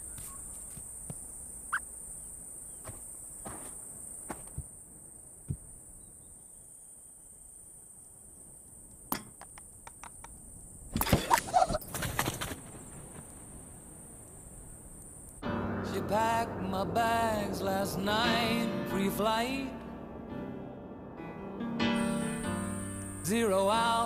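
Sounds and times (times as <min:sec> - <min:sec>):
high insect drone: 0:00.0 - 0:11.7, 0:12.4 - 0:15.4, 0:22.0 - 0:24.0.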